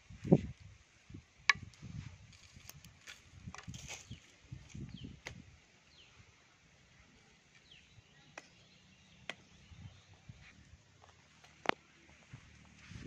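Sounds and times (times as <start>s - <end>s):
rustling in grass: 1.8s - 4.9s
faint bird chirps: 6.9s - 10.7s.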